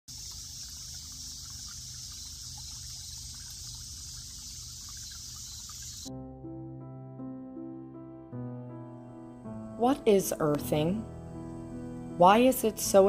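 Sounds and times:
steady high hiss: 0:00.1 - 0:06.1
stream trickling over stones: 0:00.1 - 0:06.1.

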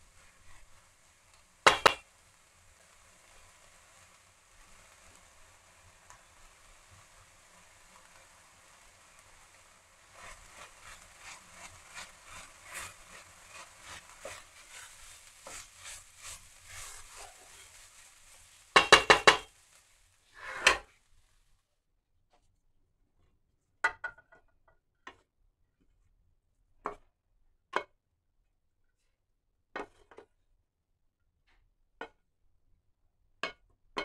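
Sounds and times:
wooden spoon scraping a pan: 0:00.0 - 0:21.4
meat sizzling in a frying pan: 0:00.0 - 0:21.6.

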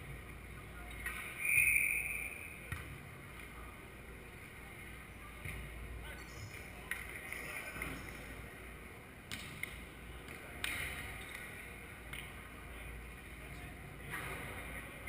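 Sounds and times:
echoing hall ambience: 0:00.0 - 0:15.0
hands hitting volleyball: 0:09.3 - 0:11.5.

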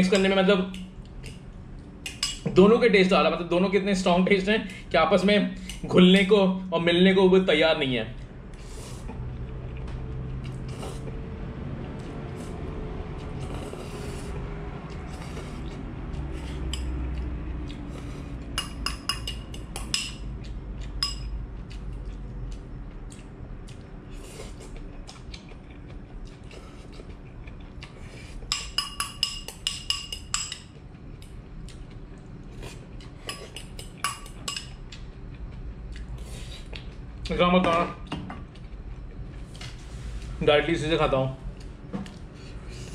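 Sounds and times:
low hum: 0:00.0 - 0:33.3
metal spoon clinking on bowl: 0:18.6 - 0:20.3, 0:21.0 - 0:21.4, 0:28.5 - 0:30.7, 0:33.3 - 0:34.8.

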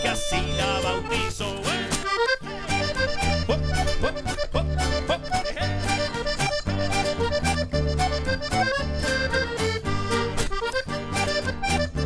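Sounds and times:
accordion playing: 0:00.0 - 0:12.0
steady bass notes: 0:00.0 - 0:12.0.

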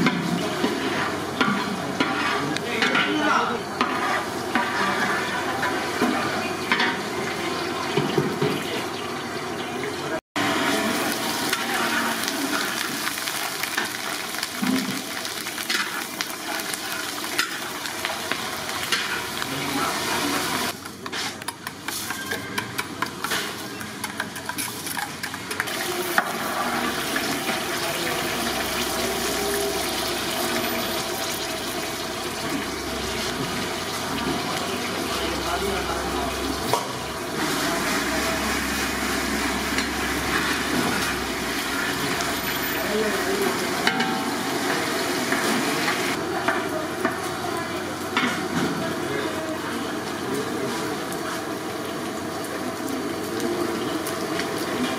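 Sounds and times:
metal spatula scraping pan: 0:00.0 - 0:06.1
chillies sizzling in hot oil: 0:00.0 - 0:54.9.

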